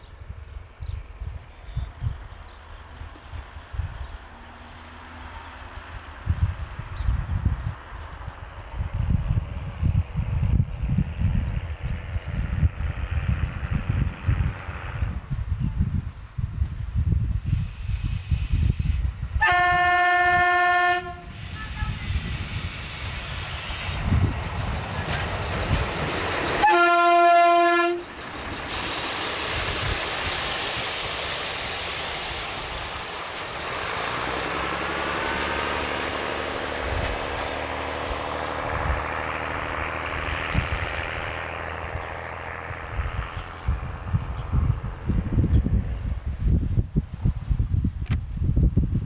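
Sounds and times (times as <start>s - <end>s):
railbus passing by: 0.0s - 49.0s
train horn blasts: 19.4s - 22.2s, 26.6s - 28.1s.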